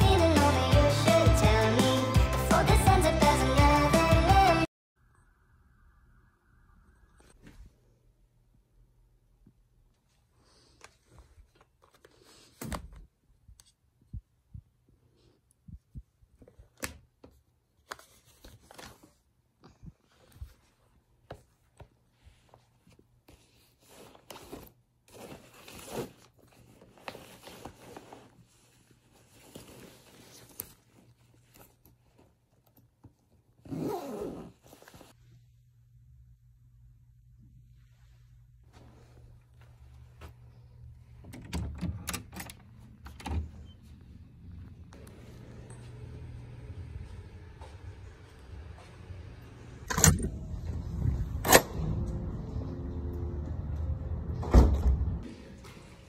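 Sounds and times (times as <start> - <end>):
clothing rustling: 17.7 - 35.4, 37.7 - 41.3.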